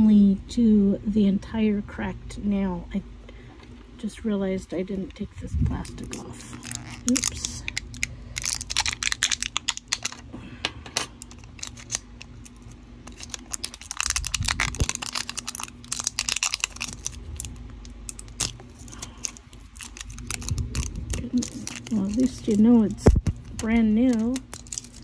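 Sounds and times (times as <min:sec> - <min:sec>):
plastic wrap crinkling and tearing: 0:05.8 - 0:10.3, 0:11.1 - 0:25.0.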